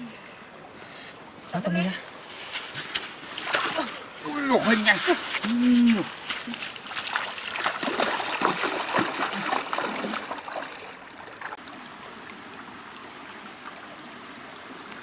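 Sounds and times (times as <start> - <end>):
insect trilling: 0.0 - 13.4
bare feet splashing in a stream: 2.1 - 11.8.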